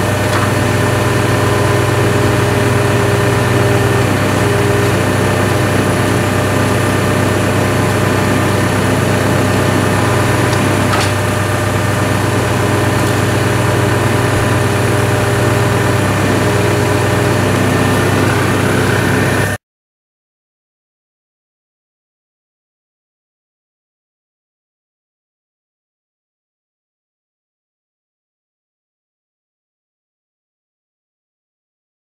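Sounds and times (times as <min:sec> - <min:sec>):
hydraulic power unit engine running: 0:00.0 - 0:19.6.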